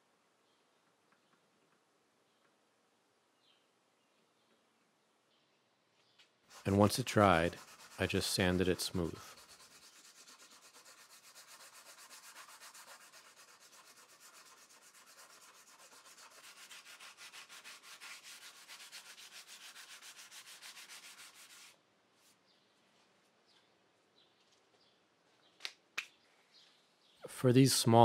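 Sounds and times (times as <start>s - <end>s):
sandpaper rubbing by hand: 6.5s - 22.4s.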